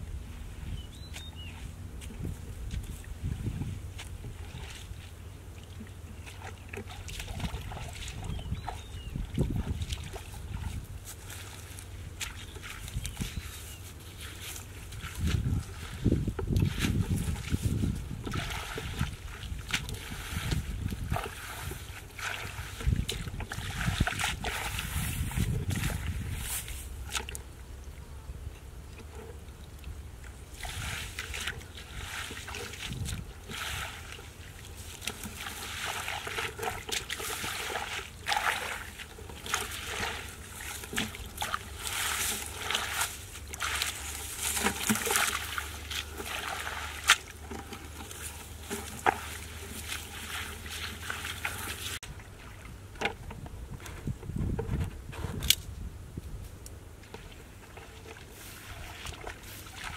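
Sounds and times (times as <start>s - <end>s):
splashing through muddy water: 1.0s - 27.8s, 28.8s - 53.4s, 57.0s - 59.9s
trampling dry straw: 19.9s - 27.1s, 34.7s - 52.0s.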